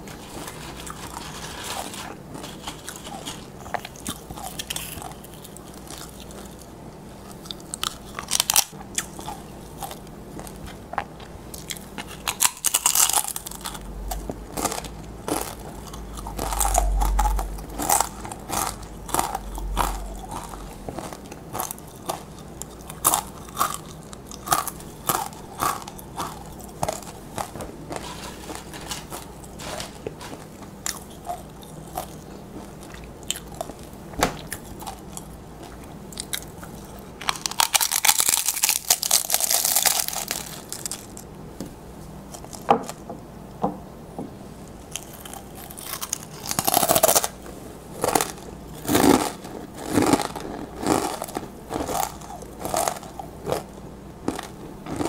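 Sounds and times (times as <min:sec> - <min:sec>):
chewing crunchy chips: 0:00.0 - 0:41.4, 0:42.2 - 0:43.0, 0:44.8 - 0:55.0
low rumble: 0:13.2 - 0:22.9.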